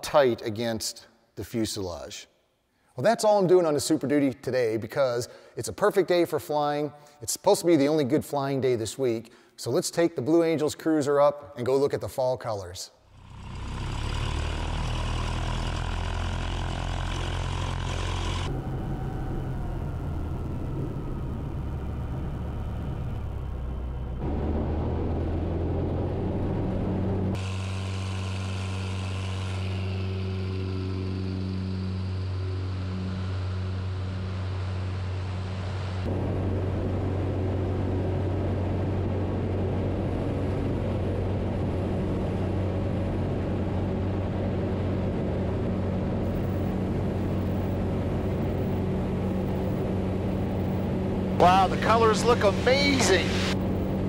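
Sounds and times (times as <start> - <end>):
light airplane engine and propeller: 13.1 - 54.0.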